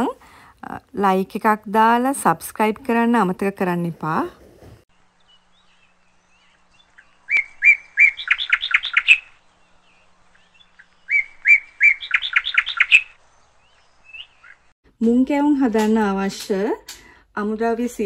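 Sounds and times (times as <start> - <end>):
songbird singing: 4.9 - 14.8.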